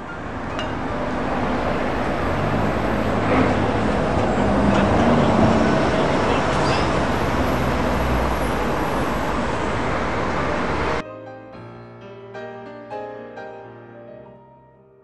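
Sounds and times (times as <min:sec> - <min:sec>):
bus engine: 0:00.0 - 0:11.0
road noise: 0:00.0 - 0:11.0.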